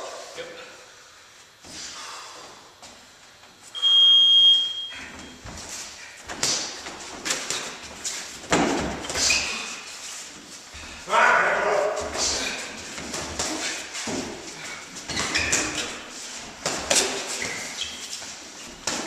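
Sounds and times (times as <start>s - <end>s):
round timer high beep: 3.8s - 5.0s
knocks and scuffs on ring floor: 5.1s - 10.6s, 11.8s - 19.0s.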